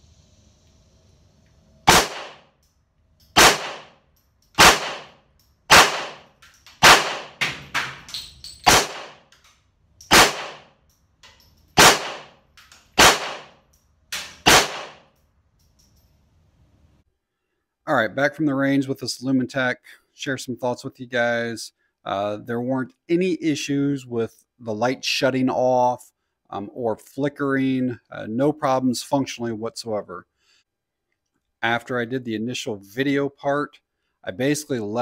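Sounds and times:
fainter gunshot cracks: 1.9s - 2.4s, 3.4s - 3.9s, 4.6s - 6.2s, 6.8s - 7.4s, 8.7s - 9.2s, 10.1s - 10.7s, 11.8s - 12.3s, 13.0s - 13.5s, 14.4s - 15.0s
pistol shots echoing: 1.9s - 2.4s, 3.4s - 4.0s, 4.6s - 8.0s, 8.6s - 9.3s, 10.1s - 10.8s, 11.8s - 12.4s, 13.0s - 15.1s.

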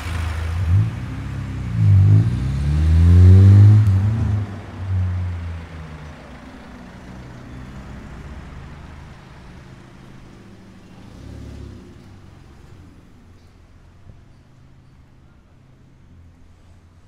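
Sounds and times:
vehicle engine passing: 0.0s - 13.5s.

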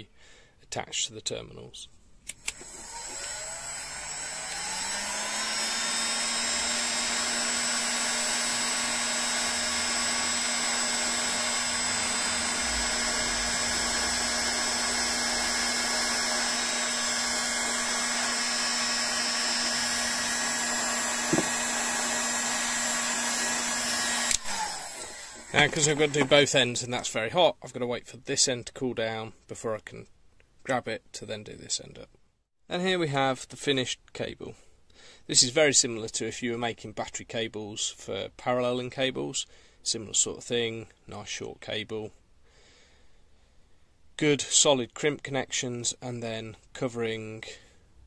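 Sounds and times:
heat gun fan whirring: 2.2s - 26.6s.

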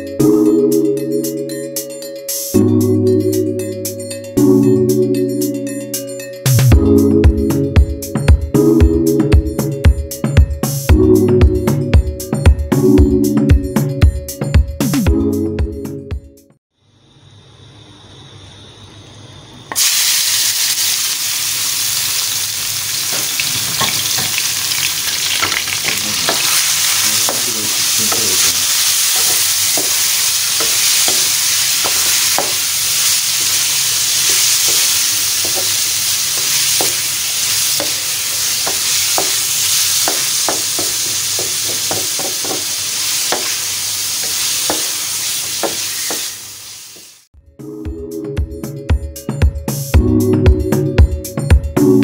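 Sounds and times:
meat sizzling in hot oil: 19.7s - 47.3s.

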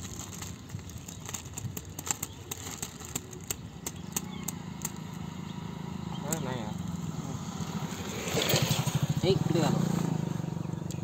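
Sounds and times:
plastic bag crinkling: 0.0s - 5.2s
motorcycle engine hum: 0.0s - 11.0s.

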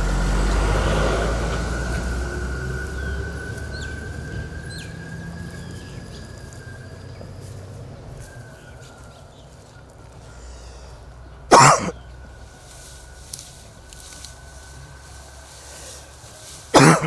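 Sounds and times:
vehicle engine rumble: 0.0s - 17.0s
high bird chirps: 1.8s - 13.0s
thin steady high tone: 12.1s - 16.7s.

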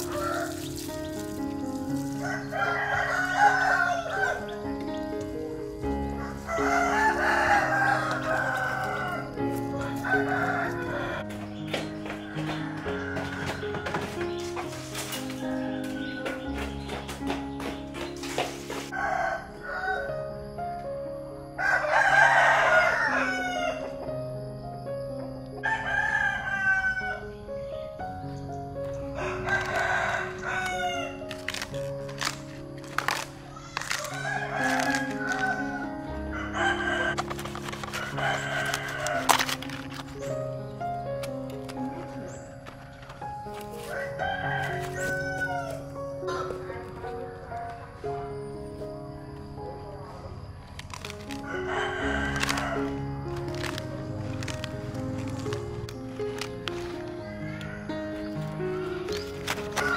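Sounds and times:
rooster crowing: 0.0s - 0.8s, 2.2s - 4.7s, 6.0s - 11.4s, 12.0s - 14.2s, 15.1s - 16.6s, 18.9s - 20.4s, 21.6s - 24.1s, 25.6s - 27.5s, 29.0s - 31.6s, 33.4s - 40.3s, 43.8s - 46.8s, 50.9s - 55.6s, 56.3s - 59.9s
background music with low notes: 0.0s - 59.9s.

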